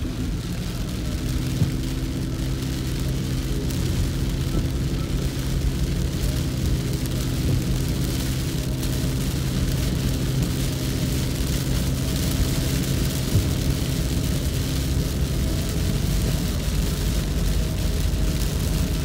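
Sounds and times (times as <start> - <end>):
car engine hum: 0.0 - 19.0
rain and wet tyres hissing: 0.0 - 19.0.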